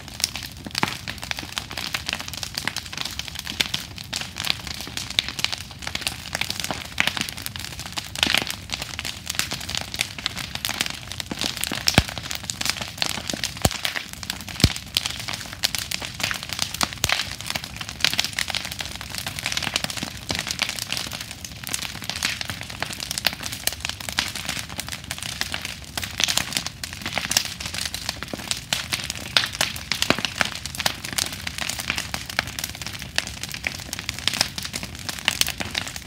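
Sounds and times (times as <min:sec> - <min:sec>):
bonfire crackling and popping: 0:00.0 - 0:36.0
loud wood cracks: 0:11.9 - 0:12.3, 0:14.6 - 0:14.8.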